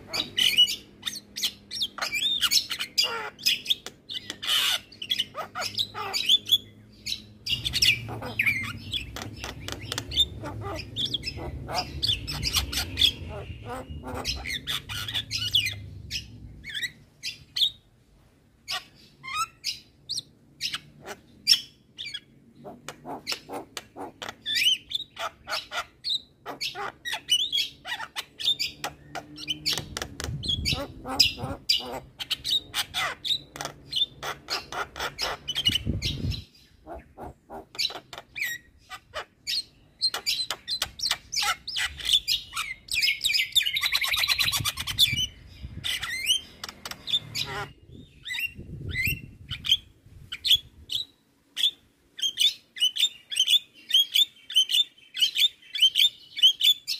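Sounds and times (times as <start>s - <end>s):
myna calling and chattering: 0.0s - 16.8s, 22.6s - 49.6s.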